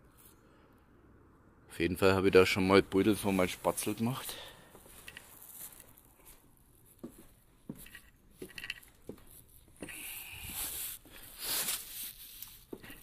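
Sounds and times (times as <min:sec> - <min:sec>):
footsteps walking: 0:04.7 - 0:13.0.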